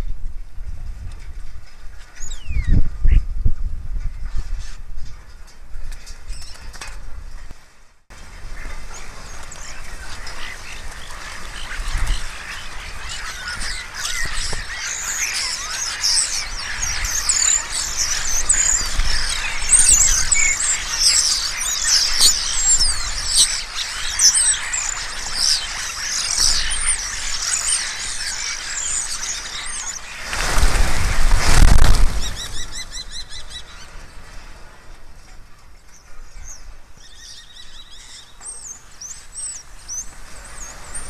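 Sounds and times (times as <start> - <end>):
starlings chattering and whistling: 1.9 - 3.3, 8.2 - 34.6, 35.5 - 41.0
whirr of bird wings: 25.0 - 33.0.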